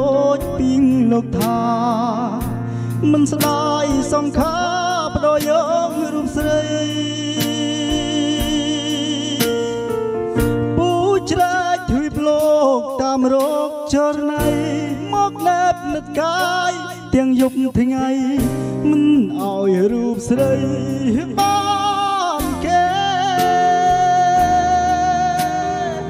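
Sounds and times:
backing music with steady beat: 0.0 - 26.0
man singing through microphone: 0.0 - 26.0.

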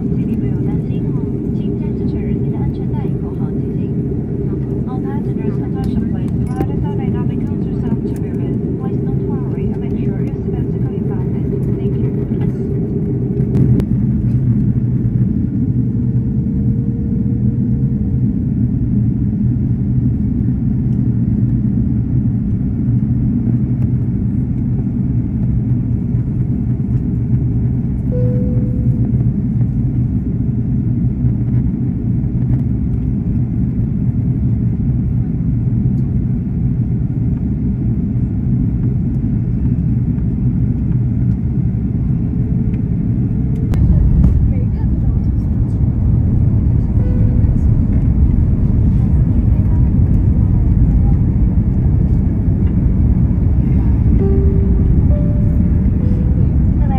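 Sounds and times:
aircraft cabin drone: 0.0 - 56.9
faint higher tone: 28.1 - 29.5, 46.8 - 49.0, 54.1 - 56.9.

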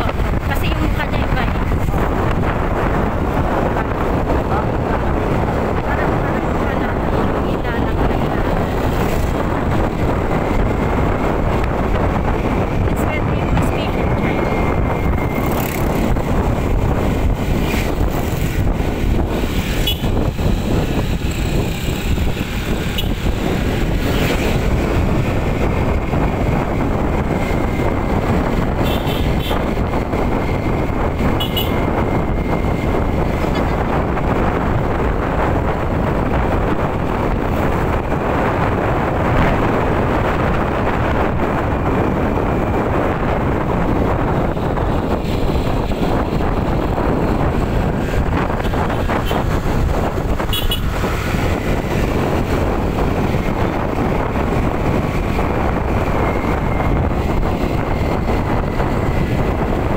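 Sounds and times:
motorbike engines running: 0.0 - 59.9
wind buffeting microphone: 0.0 - 59.9.

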